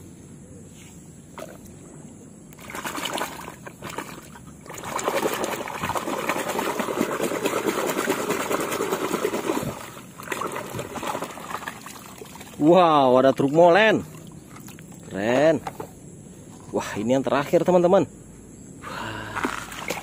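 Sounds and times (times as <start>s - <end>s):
water splashing in a basin: 2.5s - 15.8s, 19.3s - 20.0s.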